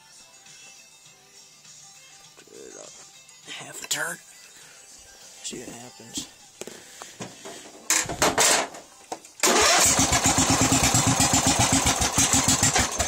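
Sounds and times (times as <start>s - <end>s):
person speaking: 5.4s - 6.4s
lawn tractor engine cranking: 7.9s - 8.7s, 9.4s - 13.0s
lawn tractor engine running: 9.4s - 13.0s.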